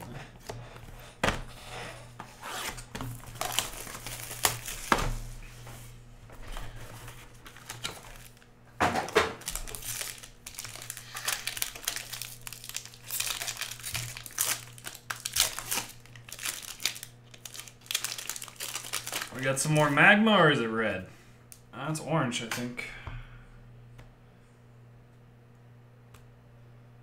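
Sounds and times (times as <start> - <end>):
card pack wrappers crinkling: 2.9 - 5.1, 6.8 - 20.0.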